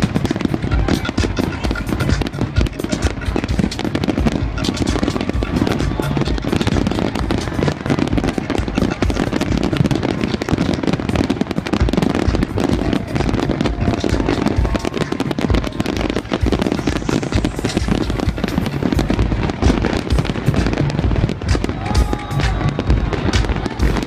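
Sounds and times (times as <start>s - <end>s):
fireworks bangs and crackles: 0.0s - 24.0s.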